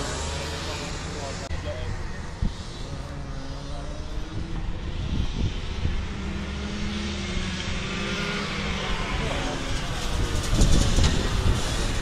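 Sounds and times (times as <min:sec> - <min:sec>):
kart engine revving: 0:00.0 - 0:12.0.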